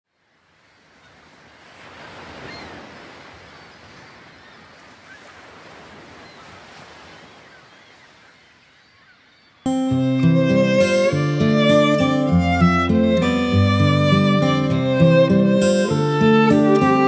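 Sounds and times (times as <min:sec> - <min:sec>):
ocean surf washing onto beach: 0:10.0 - 0:17.0.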